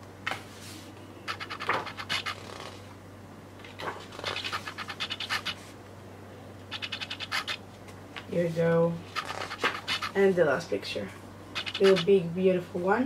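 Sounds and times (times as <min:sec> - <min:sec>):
paper pages turning: 0:03.6 - 0:05.6, 0:09.1 - 0:10.2.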